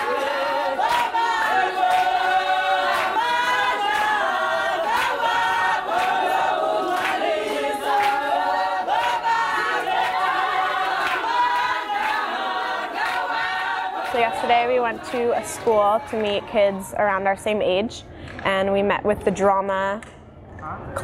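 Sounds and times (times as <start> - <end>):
choir singing a cappella: 0.0 - 16.4.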